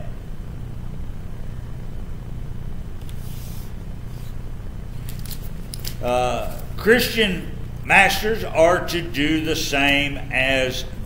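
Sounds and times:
steady low hum: 0.0s - 11.0s
paper page turning: 3.0s - 6.8s.

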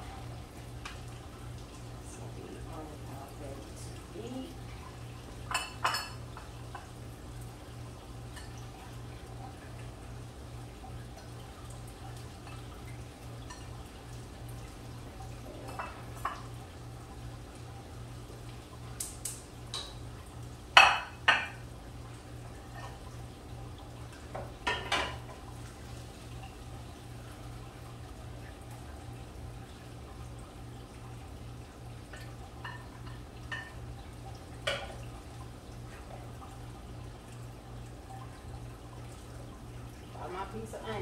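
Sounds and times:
dishes clattering: 5.5s - 6.9s, 20.8s - 21.6s, 24.4s - 25.2s.

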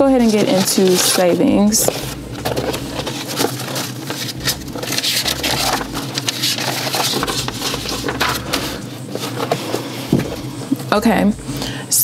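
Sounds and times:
paper rustling and scratching: 0.0s - 10.9s.

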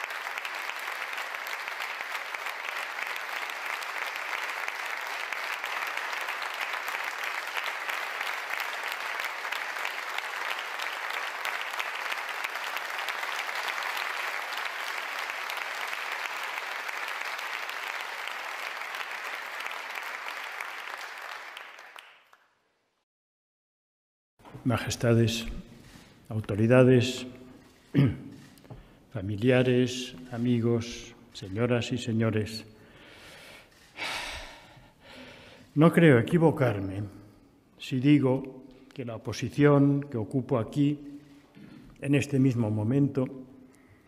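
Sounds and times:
large audience applauding: 0.0s - 22.5s.

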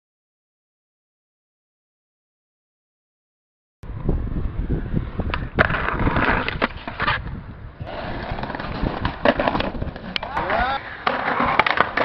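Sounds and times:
skateboard wheels rolling on concrete: 3.8s - 12.0s
skateboard clacking on ground: 5.3s - 7.3s, 7.9s - 12.0s.

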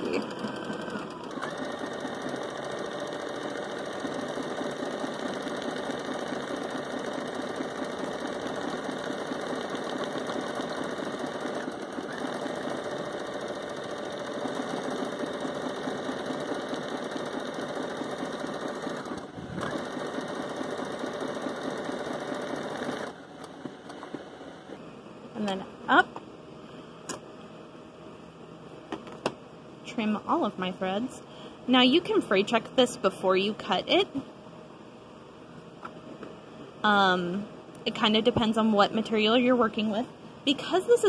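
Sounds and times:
sewing machine stitching: 0.0s - 24.5s.

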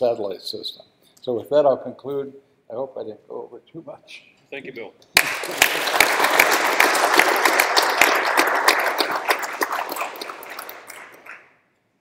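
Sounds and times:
audience applauding: 5.2s - 11.6s.

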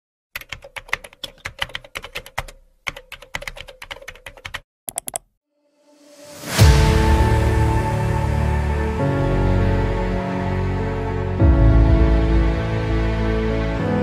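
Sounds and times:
computer keyboard typing: 0.4s - 5.3s
rising music: 5.6s - 14.0s.

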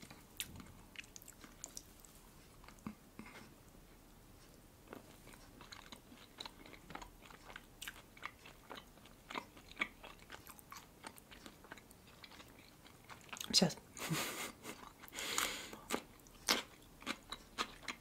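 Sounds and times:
wet chewing clicks: 0.4s - 3.0s, 4.9s - 13.6s.

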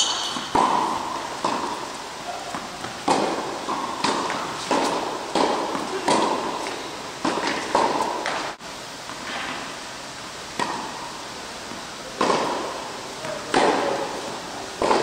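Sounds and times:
tennis ball struck by racket: 0.0s - 8.6s, 10.6s - 10.9s, 12.2s - 14.2s, 14.8s - 15.0s
tennis ball bouncing on court: 0.0s - 9.6s, 10.6s - 11.0s, 12.2s - 14.1s, 14.8s - 15.0s.

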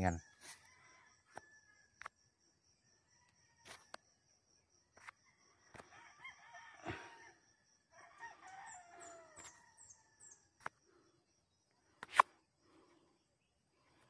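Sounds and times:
rooster crowing faintly: 5.7s - 7.4s.

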